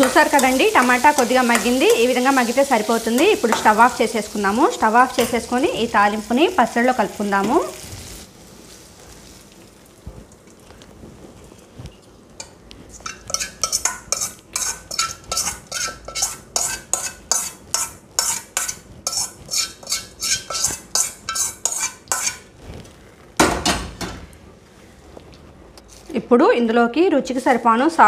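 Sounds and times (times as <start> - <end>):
metal spoon scraping steel bowl: 12.9 - 22.5.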